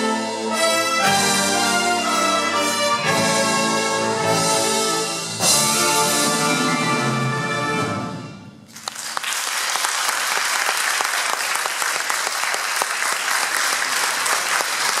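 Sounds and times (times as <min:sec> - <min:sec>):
audience applause: 0:08.7 - 0:15.0.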